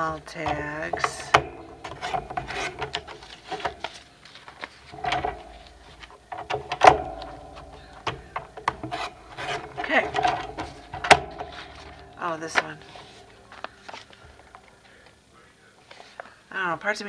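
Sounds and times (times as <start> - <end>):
paper trimmer blade scraping: 0.0 - 3.9
paper rustling: 0.0 - 15.2.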